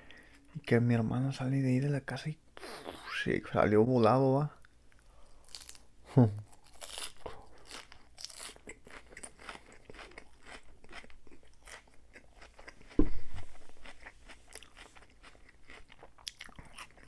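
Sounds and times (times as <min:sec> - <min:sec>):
wet crunchy chewing of salad: 0:05.4 - 0:05.8, 0:06.5 - 0:17.0
loud low thump: 0:13.0 - 0:13.6.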